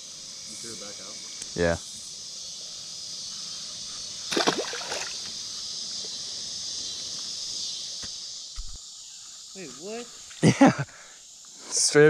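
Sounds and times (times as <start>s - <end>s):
fish splashing into water: 4.3s - 5.3s
water sloshing: 4.3s - 5.3s.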